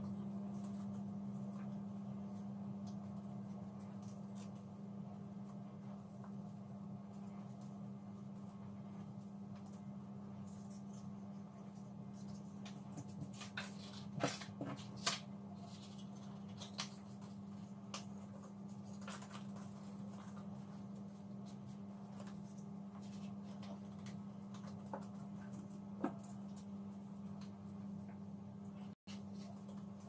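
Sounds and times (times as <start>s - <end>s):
steady low hum: 0.0s - 30.0s
paper rustling and crinkling: 11.8s - 27.7s.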